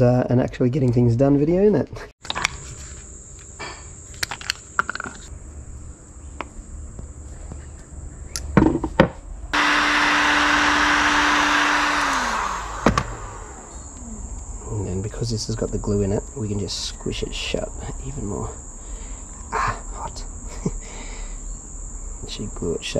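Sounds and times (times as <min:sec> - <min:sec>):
heat gun fan blowing: 0:09.6 - 0:14.9.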